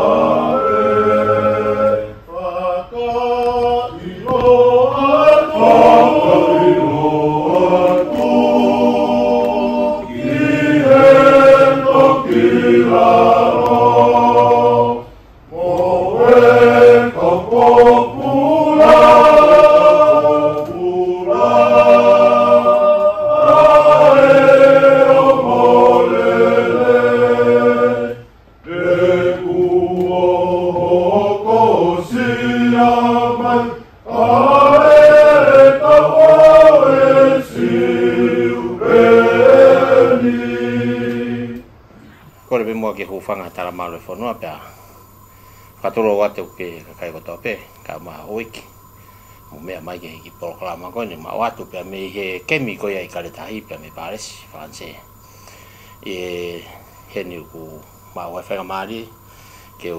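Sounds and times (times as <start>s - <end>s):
group singing hymn in harmony: 0.0s - 42.7s.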